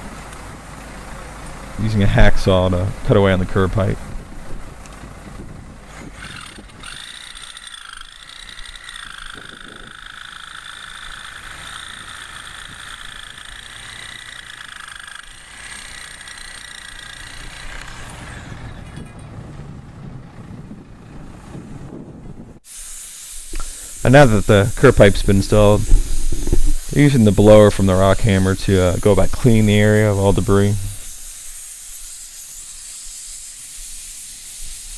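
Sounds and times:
rough hiss: 0:00.0 - 0:19.0, 0:22.6 - 0:34.9
saw cutting pipe: 0:05.7 - 0:19.2, 0:22.6 - 0:34.9.

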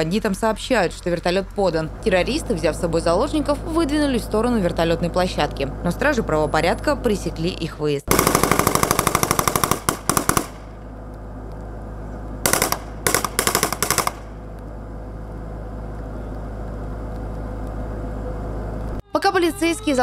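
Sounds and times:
steady low rumble: 0:00.0 - 0:20.0
automatic gunfire: 0:08.1 - 0:10.8, 0:12.4 - 0:14.3.

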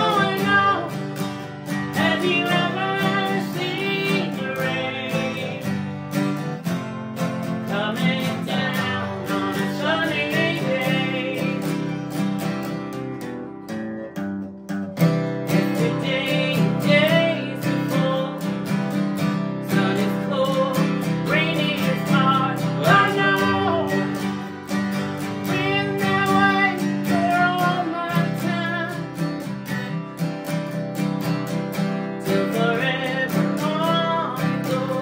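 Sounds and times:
woman singing: 0:00.0 - 0:05.9, 0:07.6 - 0:12.0, 0:15.5 - 0:18.6, 0:19.4 - 0:24.6, 0:25.2 - 0:29.4, 0:32.2 - 0:35.0
acoustic guitars strummed: 0:00.0 - 0:35.0.

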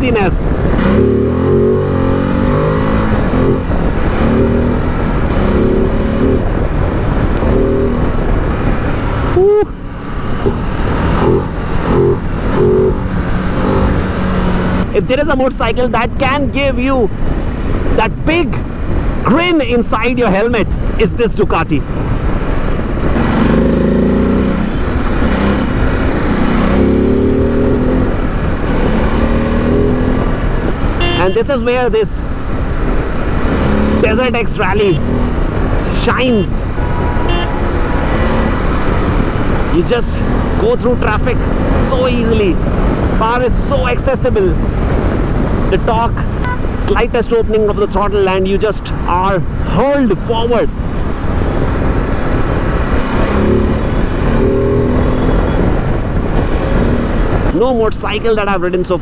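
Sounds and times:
wind rush: 0:00.0 - 0:58.6
motorcycle engine accelerating: 0:00.6 - 0:15.0, 0:22.3 - 0:31.4.

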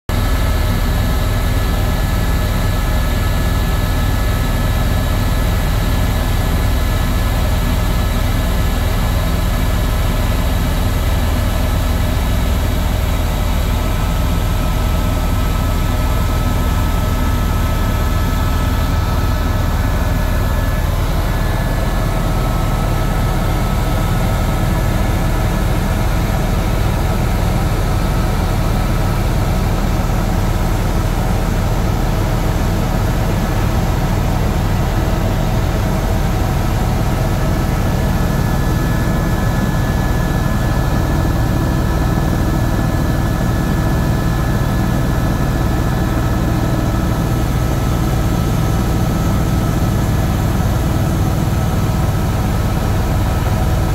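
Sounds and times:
helicopter rotor and engine drone: 0:00.1 - 0:53.9.

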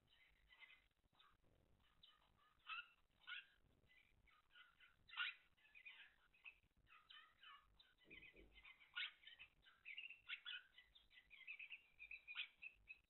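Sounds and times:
canaries chirping and singing: 0:00.0 - 0:13.0.

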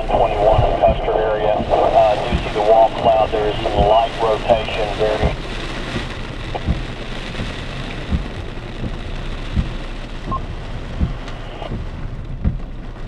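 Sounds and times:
heavy rain and wind: 0:00.0 - 0:13.0
soft low thump: 0:06.0 - 0:12.8.

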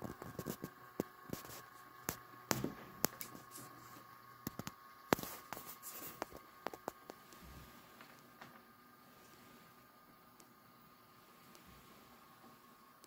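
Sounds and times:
faint steady whine: 0:00.0 - 0:13.0.

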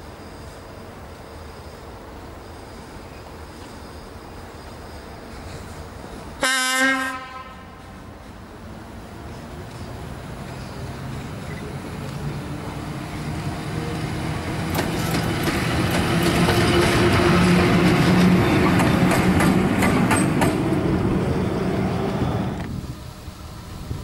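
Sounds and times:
locomotive humming: 0:00.1 - 0:24.0
wheels clicking over rail joints: 0:13.8 - 0:20.8.

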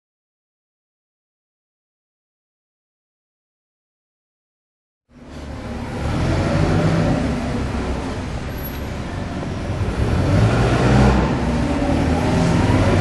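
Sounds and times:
ship engine rumble: 0:05.1 - 0:13.0.

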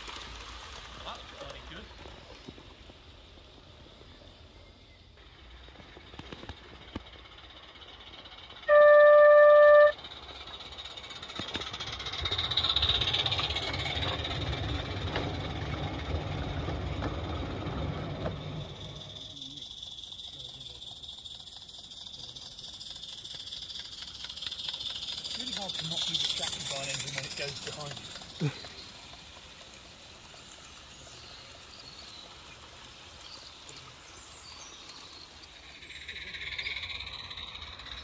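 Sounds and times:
model train wheels on rails: 0:00.0 - 0:38.0
model locomotive whistle: 0:08.5 - 0:10.2.

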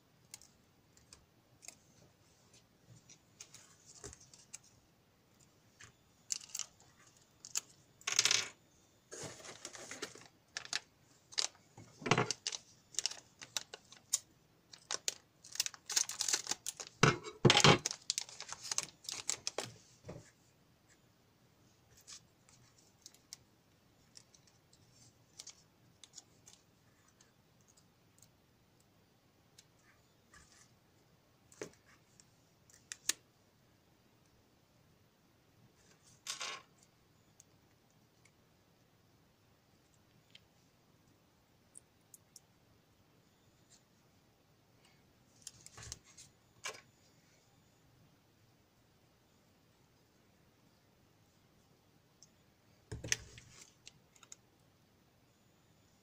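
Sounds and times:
metal foil crinkling: 0:06.3 - 0:06.7, 0:09.2 - 0:19.7.

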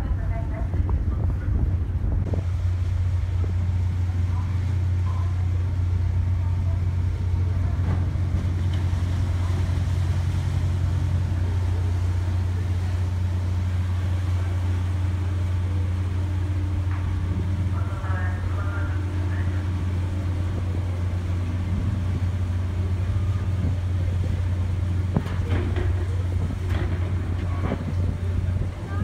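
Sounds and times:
ferry diesel engine drone: 0:00.0 - 0:29.0.

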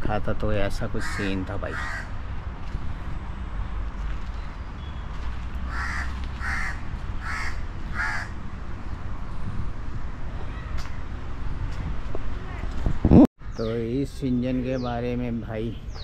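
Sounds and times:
crow cawing: 0:01.0 - 0:02.1, 0:05.7 - 0:08.4.

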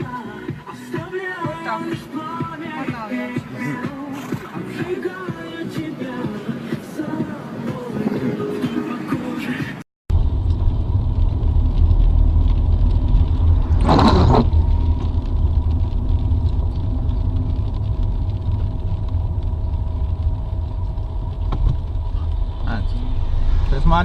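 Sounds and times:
car interior rumble: 0:10.1 - 0:24.0.

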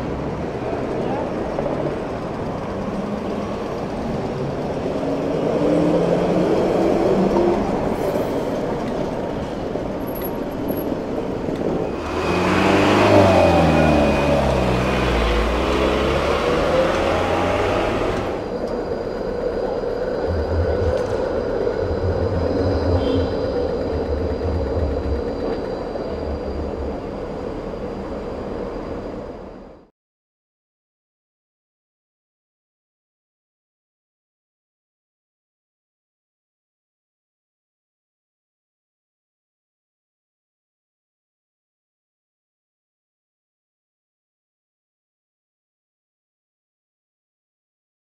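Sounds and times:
truck diesel engine passing: 0:00.0 - 0:10.1, 0:11.3 - 0:29.8
traffic passing: 0:00.0 - 0:29.9
steady high whine: 0:11.0 - 0:29.9.

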